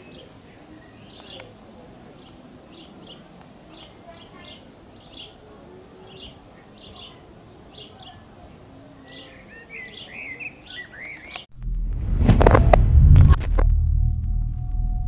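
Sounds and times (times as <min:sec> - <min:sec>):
faint steady hiss: 0:00.0 - 0:10.0
small birds chirping: 0:00.0 - 0:11.5
deep rumbling sound effect: 0:11.5 - 0:15.0
sharp hits: 0:11.6 - 0:15.0.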